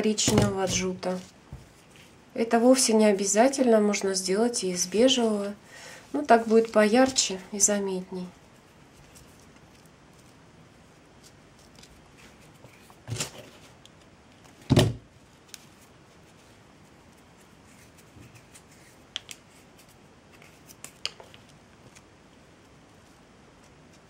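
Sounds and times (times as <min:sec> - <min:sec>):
rustle of craft materials: 0:00.0 - 0:24.0
dull thump on table: 0:14.7 - 0:15.0.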